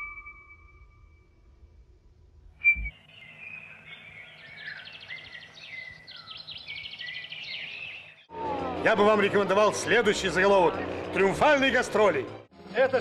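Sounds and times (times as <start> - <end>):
songbirds singing: 2.6 - 8.3.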